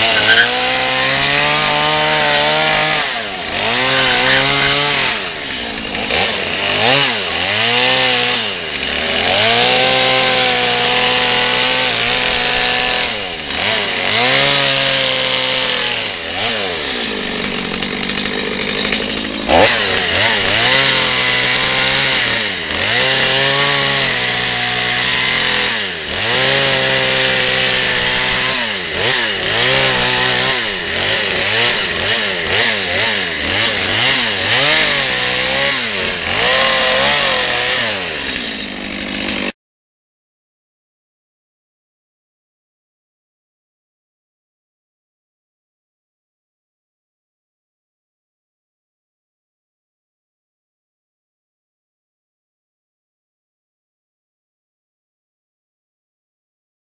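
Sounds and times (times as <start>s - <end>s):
chainsaw cutting log: 0.0s - 39.6s.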